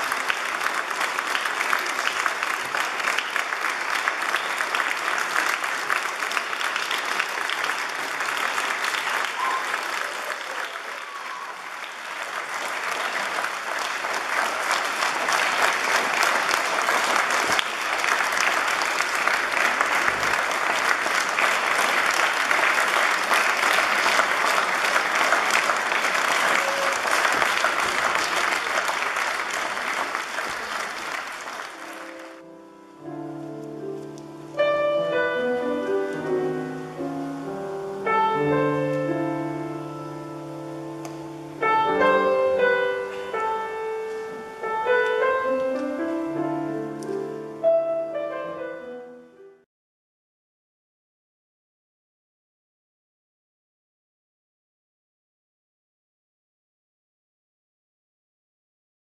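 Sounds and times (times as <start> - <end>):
audience applauding: 0.0 - 47.3
solo grand piano chords: 31.8 - 49.6.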